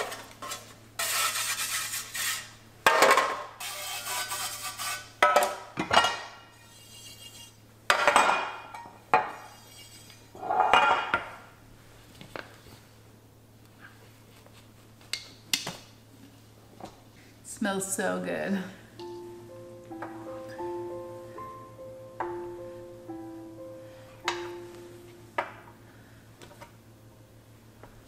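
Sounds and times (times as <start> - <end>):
baking pans knocking and clinking: 2.8 - 3.6, 5.2 - 6.4, 7.9 - 11.4.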